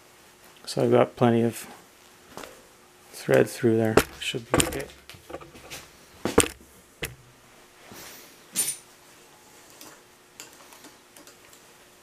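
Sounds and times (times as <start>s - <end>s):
metal clinks and knocks: 4.0s - 7.3s
metal scrape: 4.1s - 5.8s.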